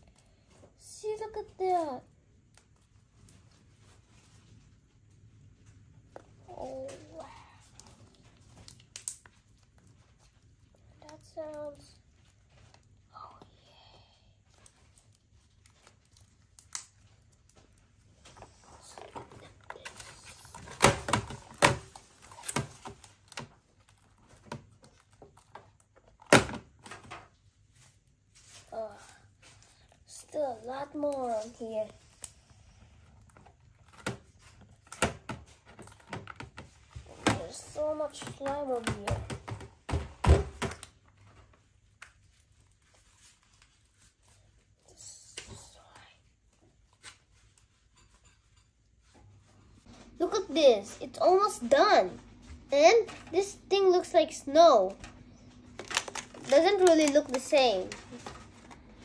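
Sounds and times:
slime squelching and popping: 0:07.6 - 0:13.0, 0:14.7 - 0:18.2
hands gathering slime: 0:55.7 - 0:58.9.

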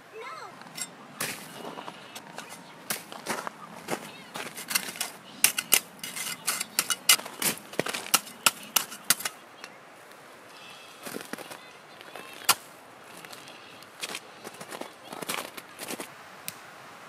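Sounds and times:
shovel scraping crusted snow: 0:00.6 - 0:09.7
shovel striking: 0:00.6 - 0:09.8.

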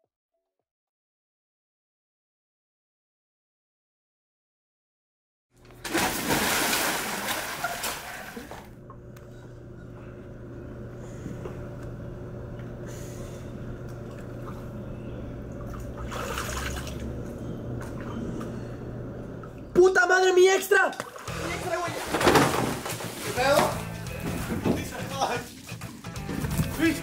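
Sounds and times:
faint low hum: 0:05.6 - 0:20.4
water movement: 0:05.7 - 0:10.2, 0:12.3 - 0:19.8, 0:20.8 - 0:27.0
loud splash into pool: 0:05.8 - 0:08.6.

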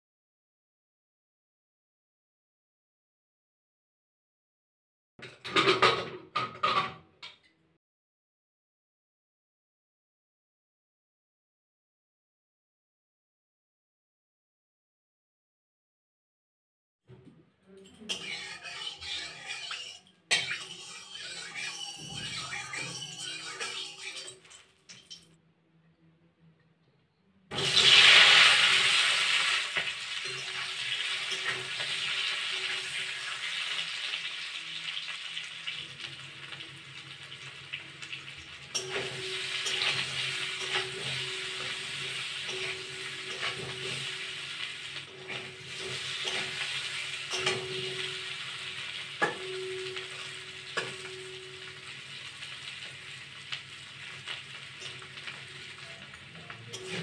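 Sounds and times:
potatoes sizzling in hot oil: 0:27.5 - 0:57.0.

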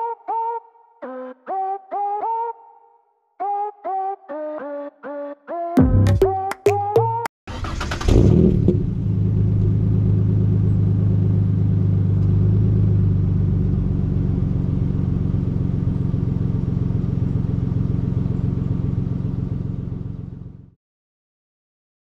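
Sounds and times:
truck engine running: 0:08.6 - 0:20.7.

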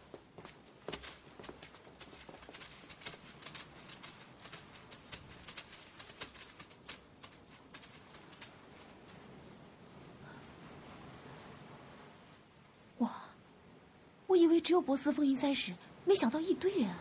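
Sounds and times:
footsteps and shuffling: 0:00.0 - 0:09.4
light hiss: 0:00.0 - 0:17.0.

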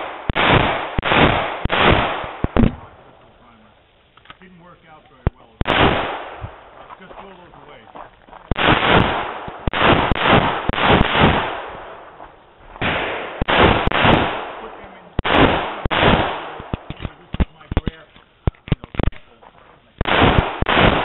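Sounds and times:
pistol shots echoing: 0:00.0 - 0:03.0, 0:05.6 - 0:06.8, 0:08.5 - 0:12.2, 0:12.8 - 0:18.0, 0:20.0 - 0:21.0.

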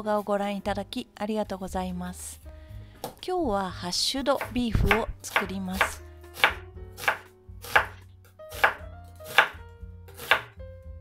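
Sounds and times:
knife chopping onion on board: 0:04.4 - 0:09.6, 0:10.2 - 0:10.6.

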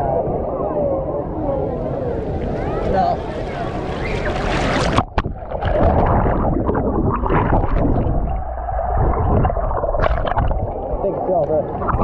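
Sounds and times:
muffled underwater churning: 0:00.0 - 0:12.0
water splash: 0:02.4 - 0:12.0.

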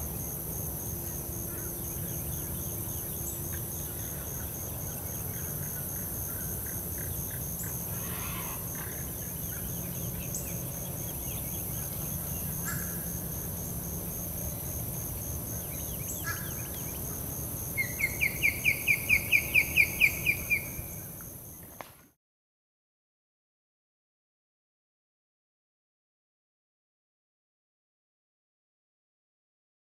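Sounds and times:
faint bird calls: 0:03.5 - 0:10.5, 0:15.8 - 0:17.0.

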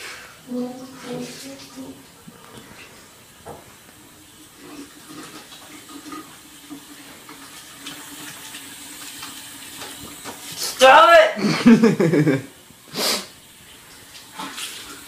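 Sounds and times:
tap running into sink: 0:05.2 - 0:10.5.

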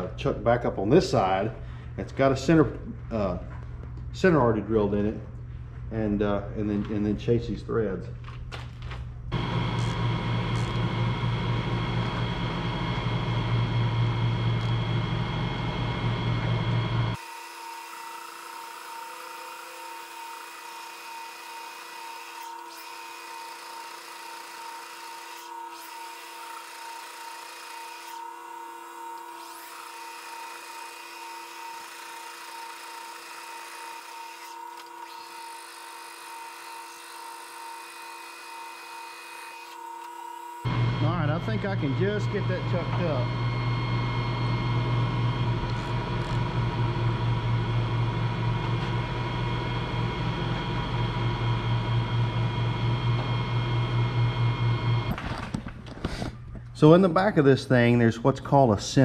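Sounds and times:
metal lathe whining: 0:09.3 - 0:55.2.

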